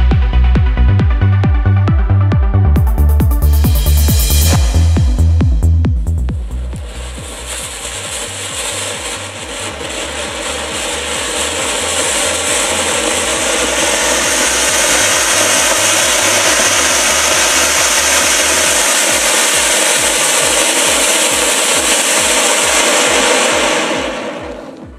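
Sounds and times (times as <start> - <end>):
background music beat: 0.0 - 24.9
firework spraying sparks with hiss: 6.5 - 24.9.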